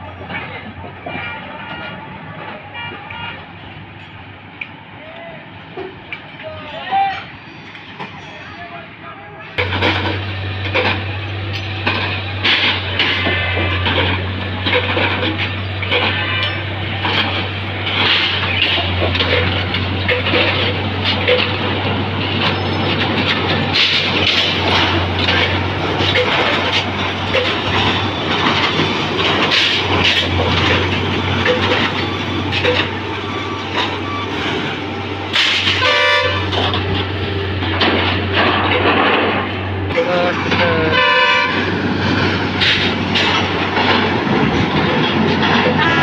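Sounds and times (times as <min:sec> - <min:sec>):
diesel machine drone: 0:09.6 - 0:46.0
machinery knocks and rattles: 0:09.6 - 0:46.0
short horn toot: 0:39.9 - 0:41.7.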